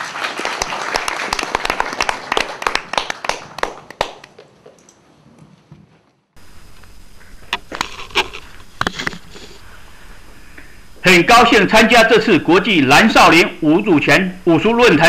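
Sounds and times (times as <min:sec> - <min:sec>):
audience applauding: 0:00.0 - 0:04.6.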